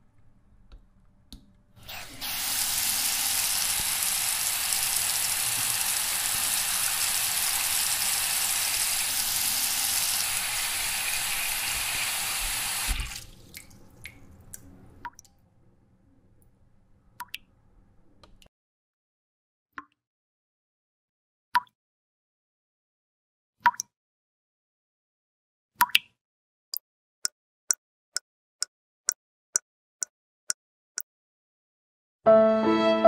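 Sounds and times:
tap water running into bucket: 1.9 - 14.2.

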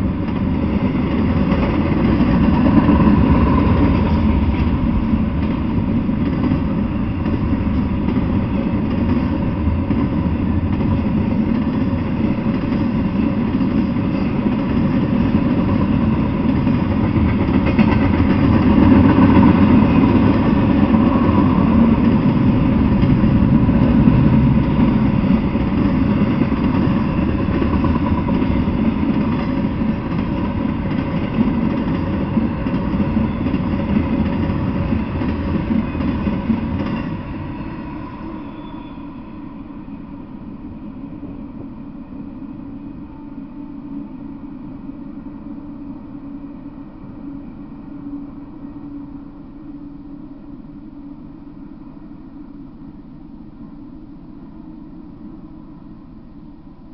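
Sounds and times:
freight train wheels rumbling: 0.0 - 56.9.

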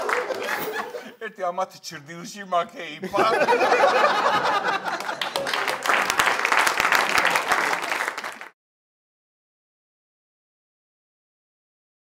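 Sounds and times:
audience applauding: 0.0 - 1.0, 3.6 - 8.6
audience laughter: 0.0 - 1.2, 3.0 - 6.1.

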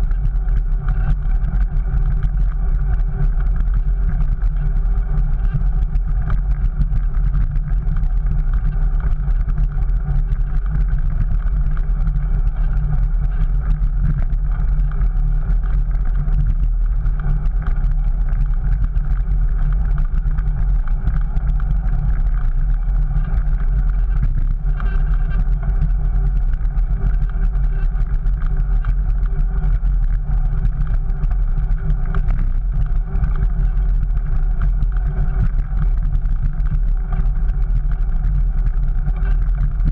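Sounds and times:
bike road noise on brick paving: 0.0 - 39.9
wind rumble: 0.0 - 39.9.

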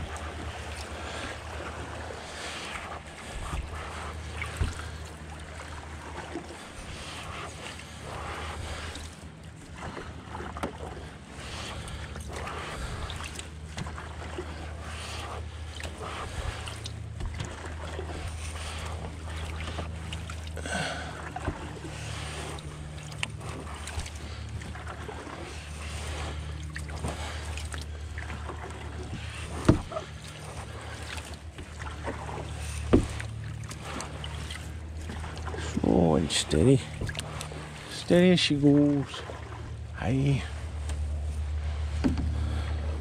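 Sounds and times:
river water around canoe: 0.0 - 43.0
low rumble: 39.2 - 43.0.

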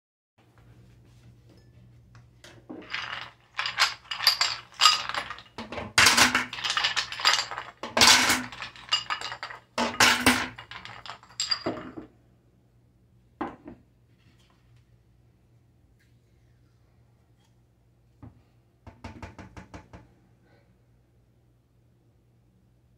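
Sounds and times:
bowls and utensil clinking: 2.5 - 12.1.

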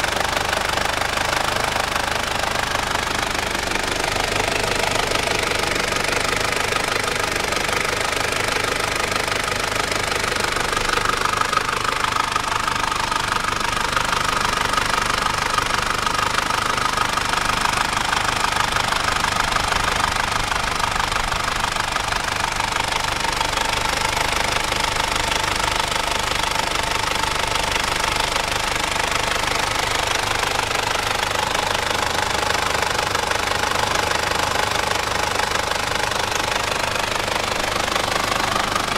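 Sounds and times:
diesel engine idling: 0.0 - 38.9.

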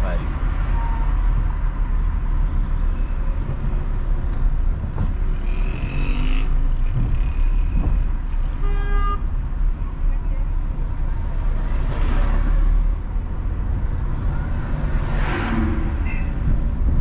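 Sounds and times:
car driving rumble: 0.0 - 17.0
car horn toot: 8.6 - 9.3.

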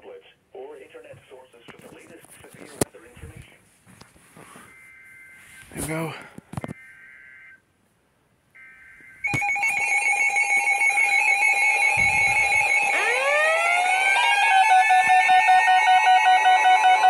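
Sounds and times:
pulsing electronic alarm tones: 8.6 - 17.0
rising sweeping alarm tones: 8.6 - 17.0.

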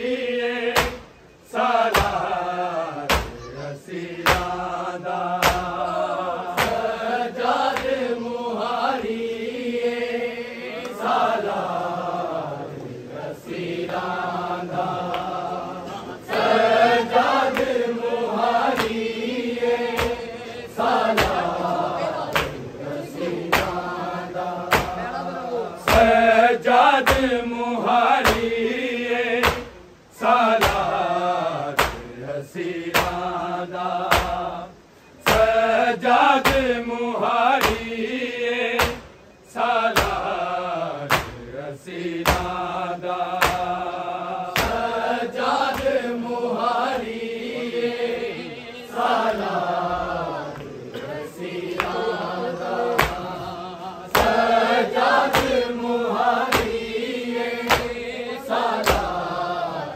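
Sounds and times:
men chanting in unison: 0.0 - 59.9
hands striking chest: 0.8 - 1.1, 5.4 - 5.8, 24.7 - 25.0, 31.8 - 32.0, 32.9 - 33.2, 40.0 - 40.3, 41.1 - 41.4, 42.2 - 42.6, 43.4 - 43.8, 44.5 - 44.9, 53.0 - 53.3, 56.4 - 56.8, 57.7 - 58.0.

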